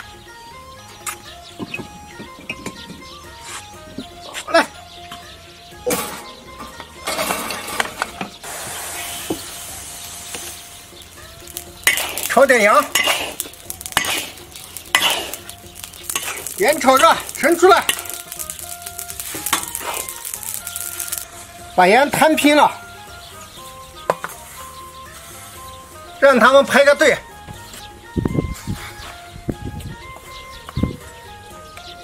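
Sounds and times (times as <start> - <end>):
spatula scraping salt in a wok: 11.8 - 21.2.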